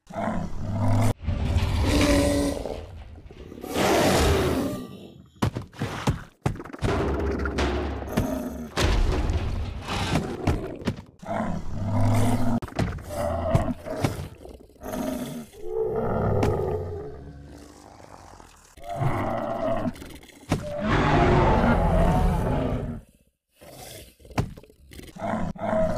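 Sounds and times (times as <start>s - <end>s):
deep growling creature roars: 0.0s - 4.8s, 20.6s - 23.0s.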